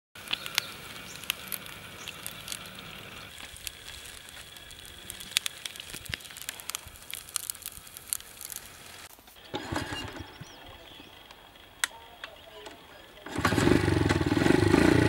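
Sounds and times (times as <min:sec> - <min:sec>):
faint steady hiss: 0:00.2 - 0:09.6
sugarcane fibres crackling: 0:00.2 - 0:13.7.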